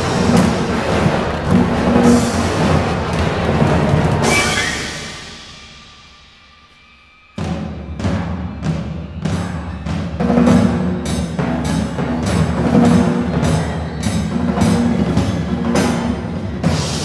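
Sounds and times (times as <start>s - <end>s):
orchestra sustained low notes: 0.0s - 9.3s
sharp percussion strokes: 0.0s - 17.0s.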